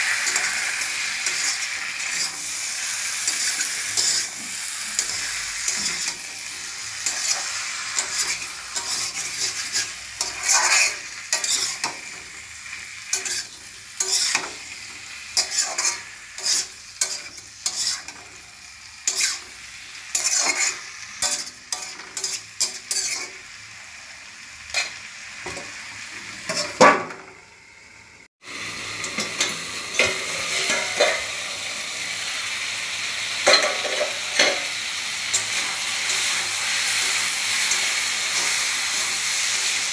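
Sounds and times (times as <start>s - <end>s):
metal spatula scraping a wok: 0.0s - 18.4s, 19.0s - 23.4s, 26.4s - 26.8s, 29.1s - 31.7s, 33.5s - 39.9s
food sizzling in oil: 0.0s - 39.9s.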